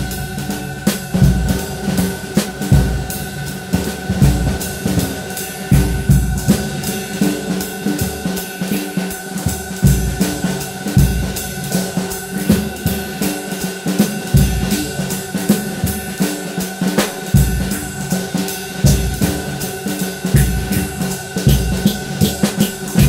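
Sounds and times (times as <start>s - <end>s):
bass drum and snare beat: 0.0s - 23.0s
held synth tones: 20.3s - 23.0s.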